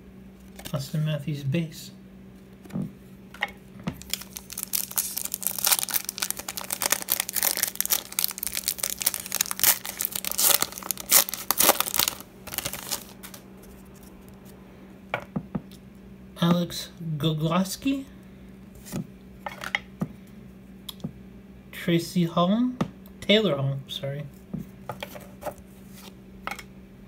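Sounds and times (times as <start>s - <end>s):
wrapper crinkling and tearing: 4.0s - 13.4s.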